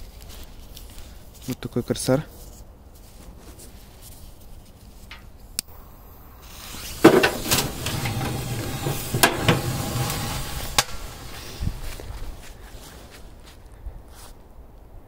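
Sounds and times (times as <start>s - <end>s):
firecracker bang: 5.7s - 12.1s
rattling inside washing machine: 7.0s - 11.1s.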